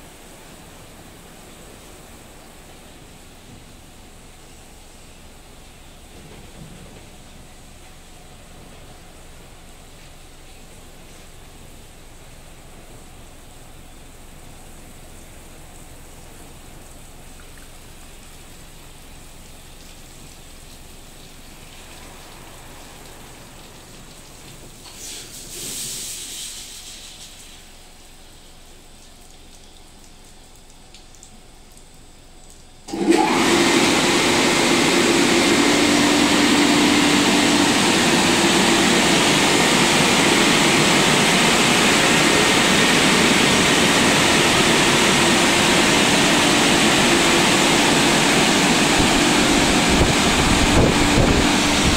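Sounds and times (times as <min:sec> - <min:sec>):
high-pressure water spray: 0:17.9 - 0:29.7, 0:32.9 - 0:51.9.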